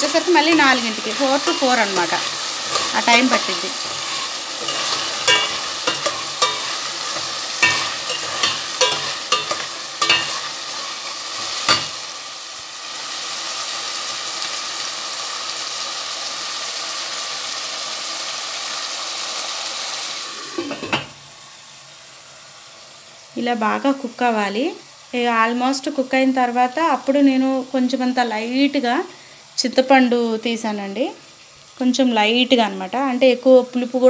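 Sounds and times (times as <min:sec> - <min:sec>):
vegetables sizzling in oil: 0:00.0 - 0:34.0
metal spoon scraping a pot: 0:00.4 - 0:12.0.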